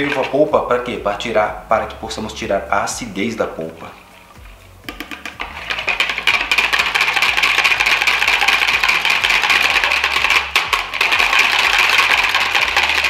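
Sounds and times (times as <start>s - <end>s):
whisk clattering against plastic bowl: 0.0s - 0.5s, 4.9s - 13.0s.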